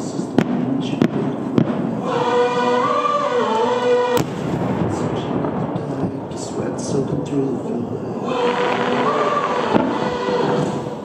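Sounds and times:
firework shells bursting: 8.6s - 11.0s.

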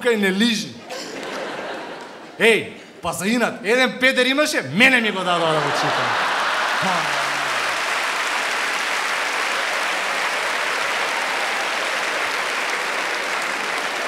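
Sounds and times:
large audience applauding: 5.4s - 14.0s.

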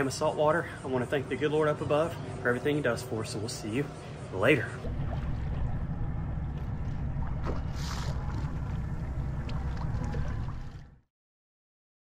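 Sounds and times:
boat motor rumble: 0.0s - 11.1s
water rushing past hull: 4.6s - 11.0s.

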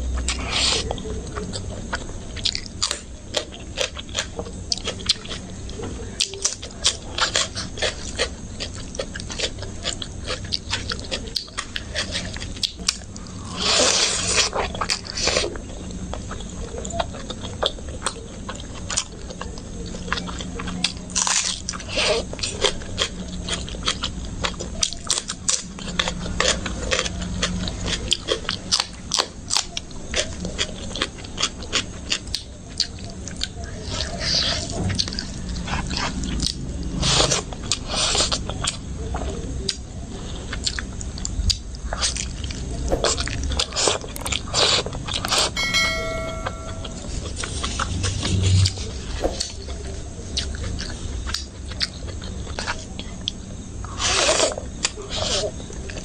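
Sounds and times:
short electronic chime: 45.3s - 47.2s.

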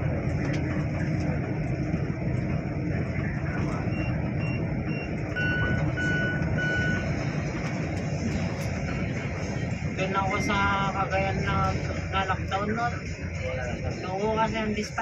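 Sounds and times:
bus engine and road rumble: 0.0s - 15.0s
electronic warning beeps: 3.8s - 7.2s.

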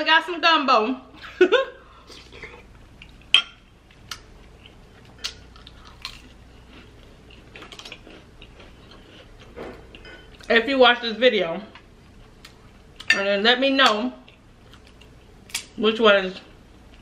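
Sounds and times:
soft chewing: 2.0s - 10.6s, 14.2s - 15.4s.

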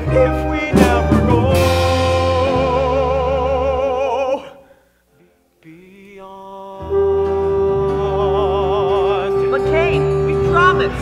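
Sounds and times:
steady bass: 0.0s - 4.2s.

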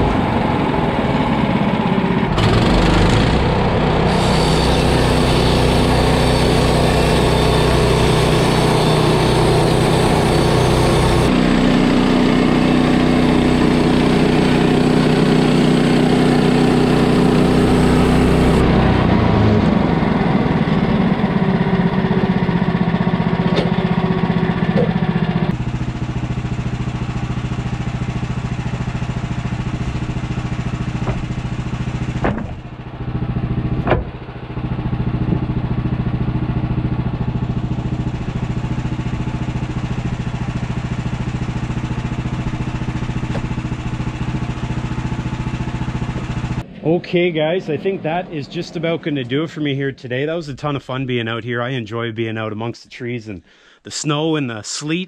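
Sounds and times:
engine running: 0.0s - 51.2s
sharp knocks: 31.0s - 31.4s, 32.2s - 32.7s, 33.7s - 34.2s.

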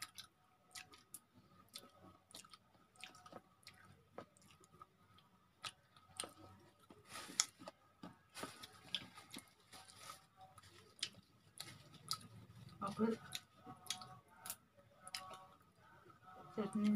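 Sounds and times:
soft chewing: 0.0s - 16.9s.

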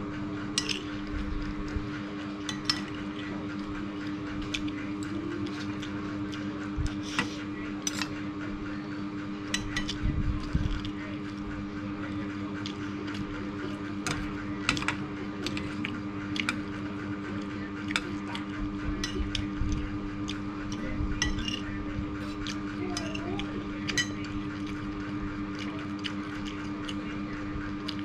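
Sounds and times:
steady low hum: 0.0s - 28.0s
spoon and fork clinking on plate: 2.4s - 3.0s, 21.2s - 21.6s, 23.9s - 24.3s
wet chewing: 22.2s - 28.0s.

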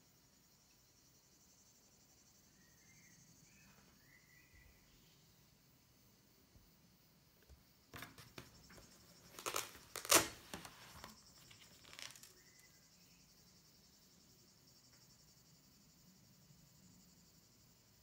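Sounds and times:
rustling and scratchy scraping: 8.0s - 12.6s.

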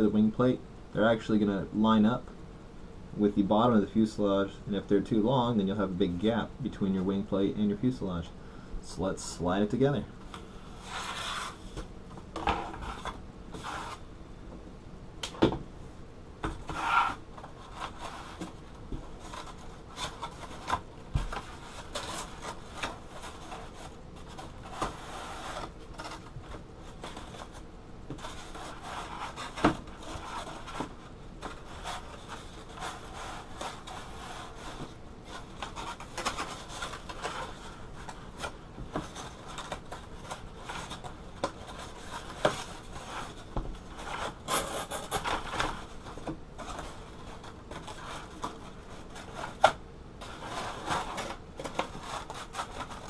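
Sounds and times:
foam board rubbing and scraping: 10.8s - 11.7s, 12.7s - 14.0s, 16.6s - 26.3s, 26.9s - 37.8s, 46.6s - 53.0s.

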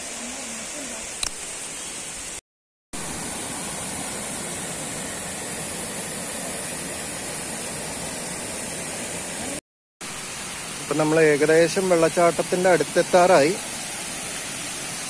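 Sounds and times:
waterfall rushing: 9.3s - 15.0s.

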